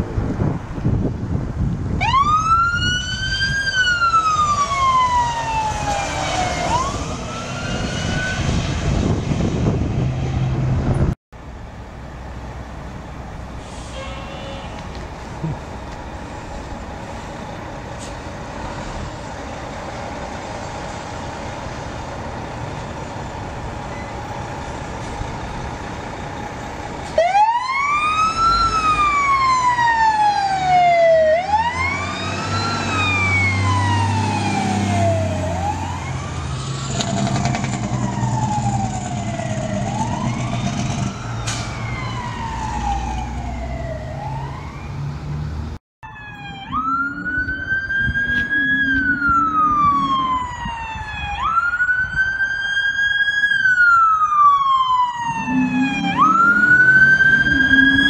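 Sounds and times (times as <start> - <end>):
truck engine rumbling: 0.0 - 58.0
fire engine siren wailing: 1.9 - 10.6, 25.2 - 45.1, 46.0 - 58.0.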